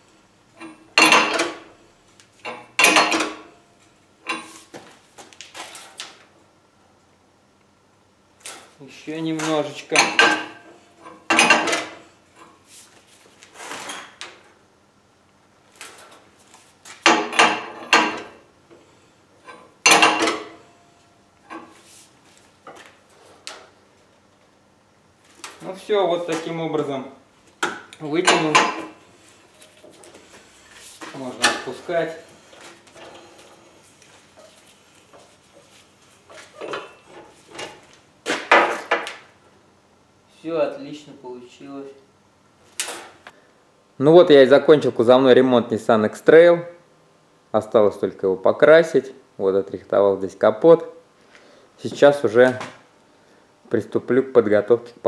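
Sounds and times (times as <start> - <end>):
metallic clanks and creaks: 0.6 - 1.7, 17.0 - 18.4, 19.4 - 20.7, 28.1 - 29.0, 32.5 - 33.7, 36.3 - 37.8.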